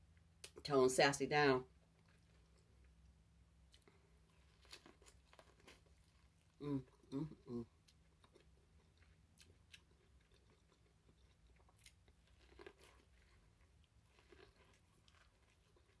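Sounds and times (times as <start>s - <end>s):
low steady hum: 0.0s - 16.0s
biting and chewing corn: 3.7s - 6.6s, 7.8s - 16.0s.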